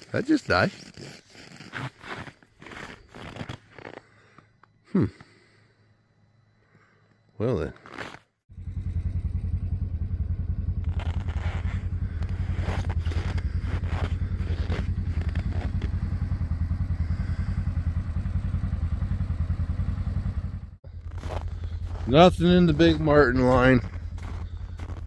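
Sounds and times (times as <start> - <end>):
engine idling: 8.5 - 25.0.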